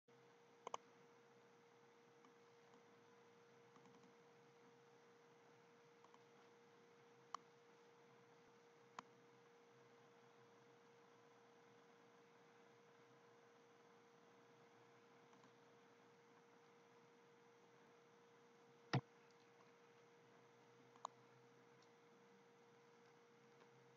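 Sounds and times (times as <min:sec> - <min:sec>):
faint hum tone: 0:00.1 - 0:23.9
sharp clicks: 0:00.6 - 0:00.8.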